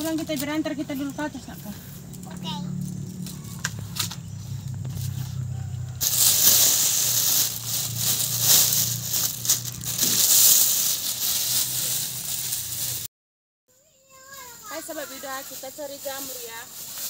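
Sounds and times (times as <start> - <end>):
plastic bag crinkling: 6.0 - 13.1.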